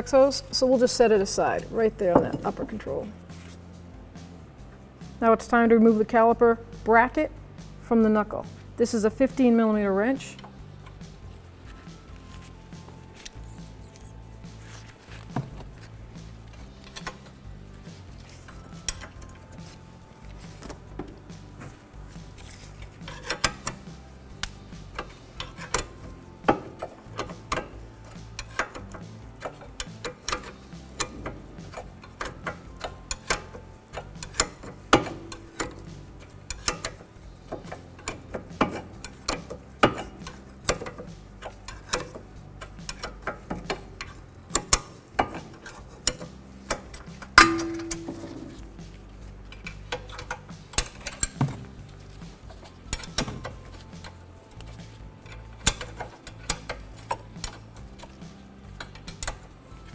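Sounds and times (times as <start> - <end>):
wrench clicking on metal bolts: 16.6 - 17.4, 18.3 - 21.2, 22.4 - 59.9.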